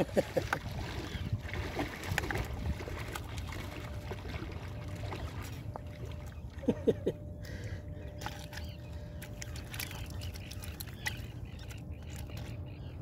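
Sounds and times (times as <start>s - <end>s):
wind rumble on microphone: 0.0s - 6.2s
sea water lapping at shore: 0.0s - 13.0s.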